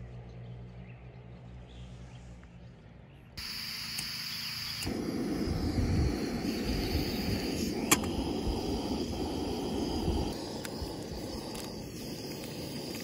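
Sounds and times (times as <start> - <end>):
high insect chirring: 3.4 - 13.0.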